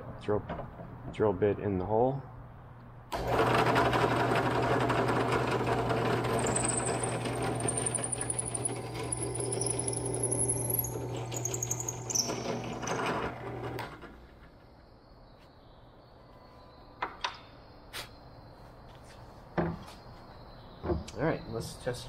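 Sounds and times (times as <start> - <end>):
motor hum: 3.1 - 14.6
drill press drilling wood: 3.2 - 14.1.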